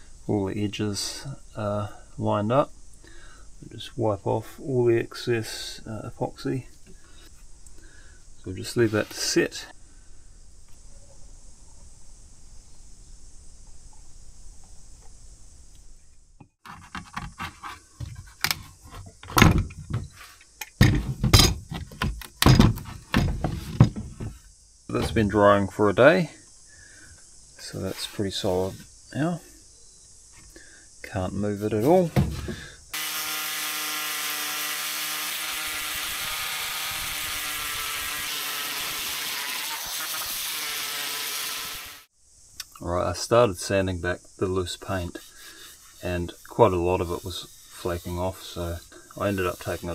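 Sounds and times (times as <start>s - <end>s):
metal clamps clanking and scraping: 20.8s - 24.1s
sanding disc rasping on wood: 33.0s - 42.0s, 44.7s - 49.9s.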